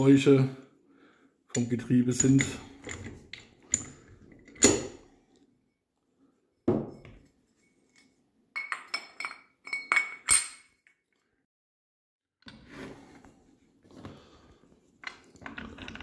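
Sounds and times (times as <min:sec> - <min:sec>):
metal gears clinking and knocking: 0:15.0 - 0:16.0.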